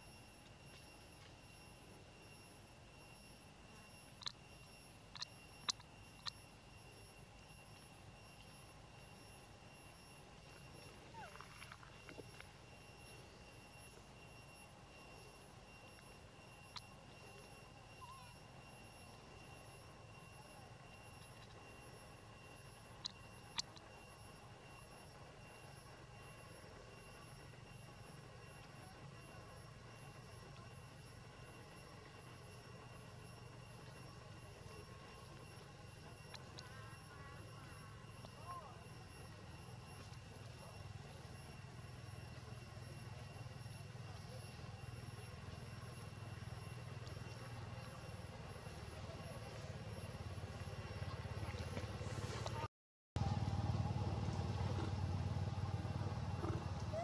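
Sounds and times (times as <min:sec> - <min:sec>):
faint steady hum: 0:00.0 - 0:57.0
steady high-pitched whine: 0:00.0 - 0:57.0
sharp high-pitched chirp: 0:18.0 - 0:18.4.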